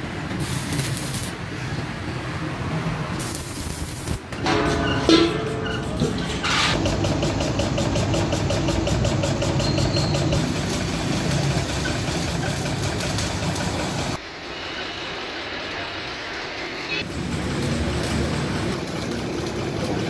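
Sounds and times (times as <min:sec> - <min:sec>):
welding arc crackling: 0:00.0 - 0:01.5, 0:03.1 - 0:04.4, 0:06.8 - 0:20.0.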